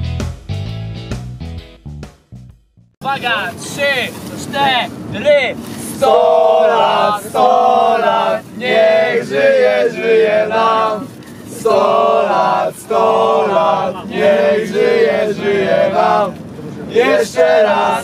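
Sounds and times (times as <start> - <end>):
low hum of moving coach: 3.2 - 18.0
men singing and chanting: 5.7 - 18.0.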